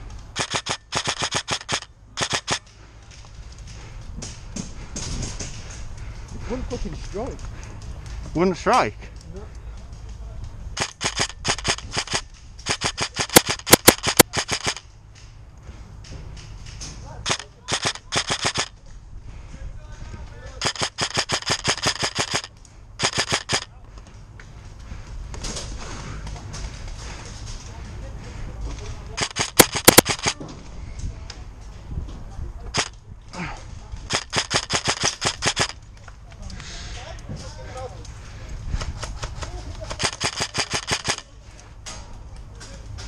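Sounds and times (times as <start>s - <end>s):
airsoft rifle shots: 0.4s - 2.6s, 10.8s - 14.8s, 17.2s - 18.7s, 20.6s - 23.7s, 29.2s - 30.4s, 32.7s - 32.9s, 34.1s - 35.8s, 39.0s - 41.3s.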